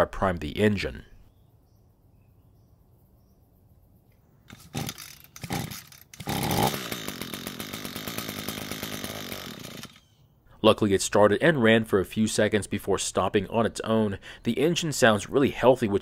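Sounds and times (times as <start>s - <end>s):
starter rope pulls: 4.5s - 10.1s
string trimmer engine running: 4.5s - 10.1s.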